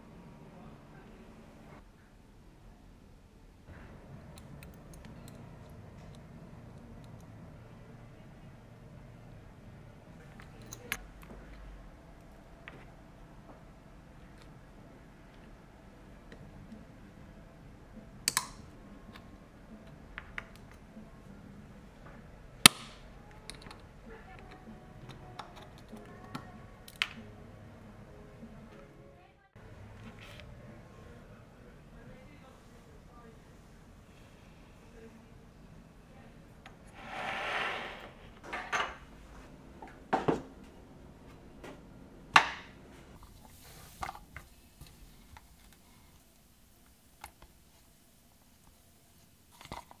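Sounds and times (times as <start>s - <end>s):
pliers clicking on metal: 18.2s - 18.6s.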